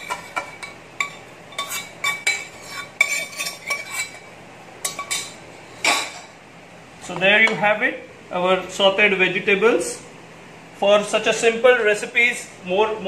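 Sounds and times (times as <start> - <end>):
metal spoon scraping a pan: 0.0 - 6.3.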